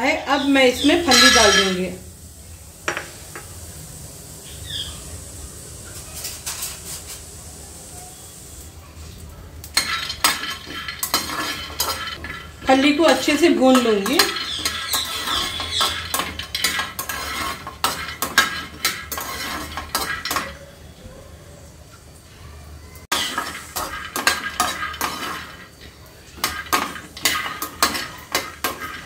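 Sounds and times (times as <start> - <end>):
spoon scraping a metal pan: 0.4 - 1.8, 9.8 - 20.6, 23.1 - 29.0
peanuts rattling in a pan: 1.0 - 1.8, 9.8 - 20.5, 23.1 - 29.0.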